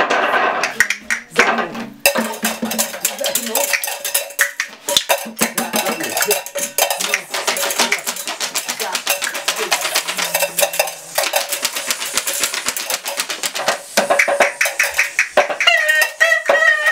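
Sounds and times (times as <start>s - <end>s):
clattering hand percussion: 0.0s - 16.9s.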